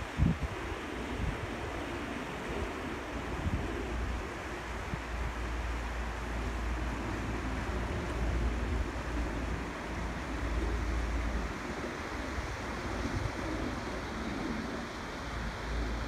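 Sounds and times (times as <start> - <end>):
wind buffeting microphone: 0.0 - 5.7, 6.4 - 16.0
river rushing over rapids: 0.0 - 16.0.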